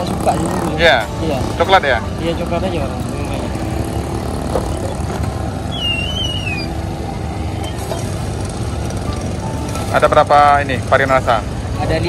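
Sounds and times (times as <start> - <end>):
roadside rumble: 0.0 - 12.0
wavering high squeak: 5.6 - 6.8.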